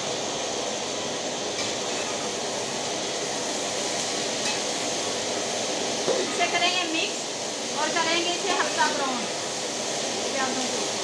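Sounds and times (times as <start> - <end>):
onions sizzling in hot fat: 0.0 - 11.0.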